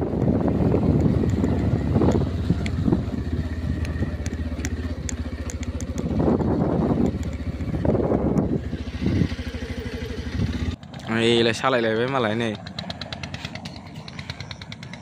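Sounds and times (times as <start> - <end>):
wind buffeting microphone: 0.0 - 10.8
small engine running: 0.0 - 11.4, 12.2 - 15.0.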